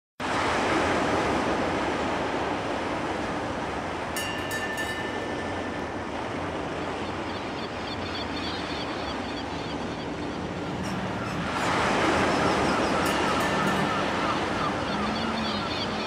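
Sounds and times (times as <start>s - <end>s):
faint high chirps: 7.4s - 16.0s
faint high tone: 12.5s - 16.0s.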